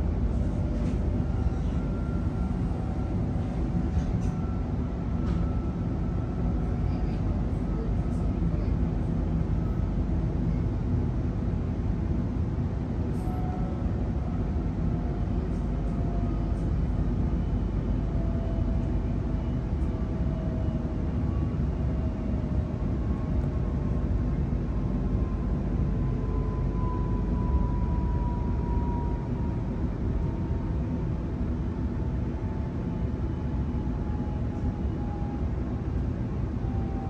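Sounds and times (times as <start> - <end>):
train wheels rumbling on track: 0.0 - 21.8.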